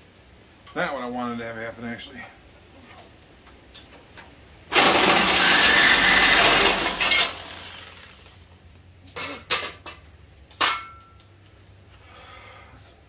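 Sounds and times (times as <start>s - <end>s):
power saw cutting steel: 4.7s - 8.3s
sharp metal clanks: 10.6s - 11.2s.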